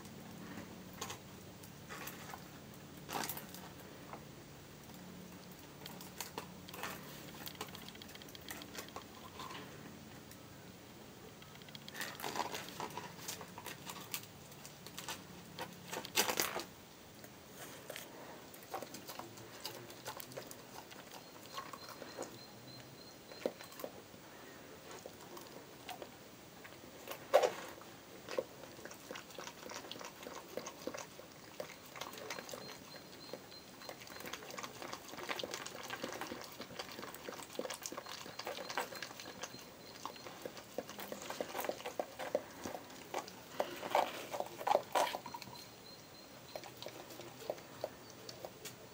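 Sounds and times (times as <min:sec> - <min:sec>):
dog licking: 0:18.6 - 0:22.4, 0:28.3 - 0:45.6, 0:46.4 - 0:48.6.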